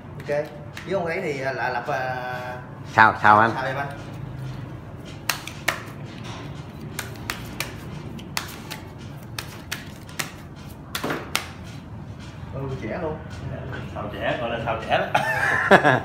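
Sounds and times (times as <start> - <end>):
playing cards shuffling: 5.1 - 11.8.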